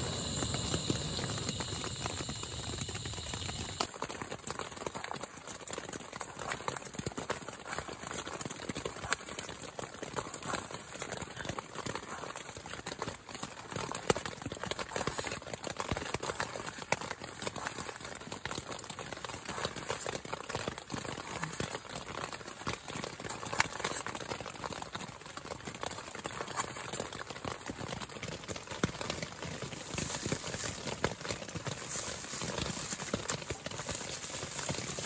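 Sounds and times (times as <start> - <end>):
steady rain patter: 0.0 - 4.9, 27.1 - 35.0.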